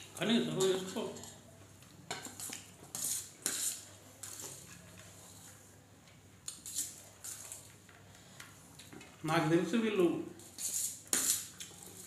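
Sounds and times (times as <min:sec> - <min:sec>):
spoon scraping on steel plate: 0:02.1 - 0:05.5, 0:10.4 - 0:12.0.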